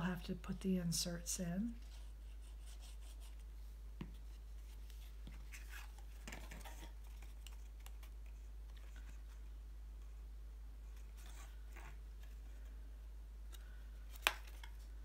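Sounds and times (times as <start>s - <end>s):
low steady hum: 0.0s - 15.0s
cardstock rustling and scraping: 4.1s - 9.5s, 10.9s - 12.8s.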